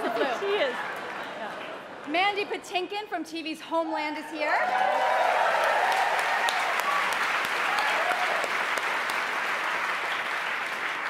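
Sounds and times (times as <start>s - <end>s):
audience applauding: 0.0s - 1.9s, 4.5s - 11.0s.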